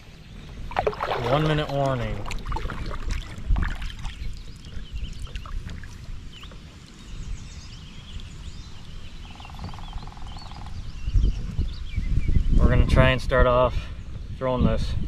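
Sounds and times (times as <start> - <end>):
paddle splashing in water: 0.5 - 7.0
paddle knocking on kayak: 0.7 - 6.7.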